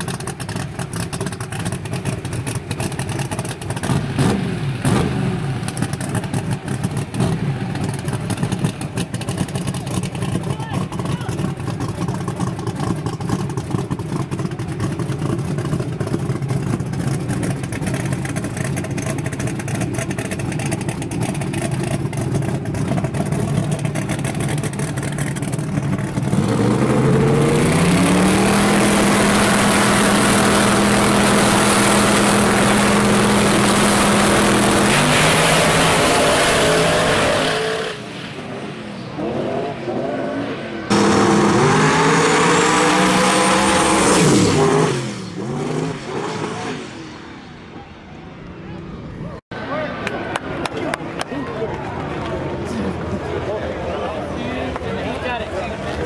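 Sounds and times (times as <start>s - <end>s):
race cars launching at full throttle: 0.0s - 48.1s
drag racing engine idling and revving: 0.0s - 49.2s.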